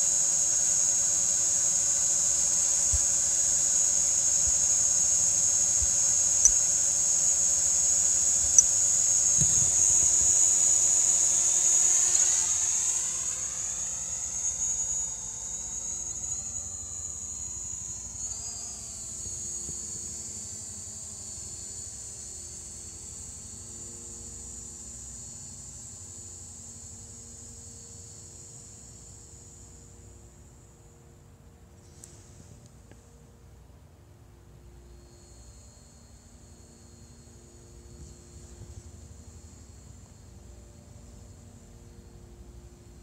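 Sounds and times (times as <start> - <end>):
drone propellers whining: 0.0 - 21.4.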